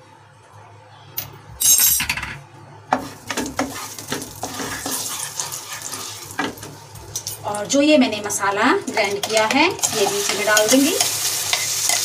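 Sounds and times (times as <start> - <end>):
wooden spatula scraping pan: 2.9 - 6.7
oil sizzling: 2.9 - 12.0.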